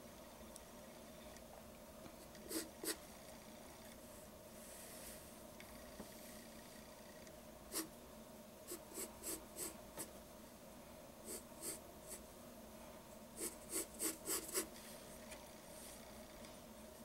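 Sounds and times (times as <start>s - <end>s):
faint steady hum: 0.0s - 17.0s
pencil scratching on paper: 13.4s - 14.7s.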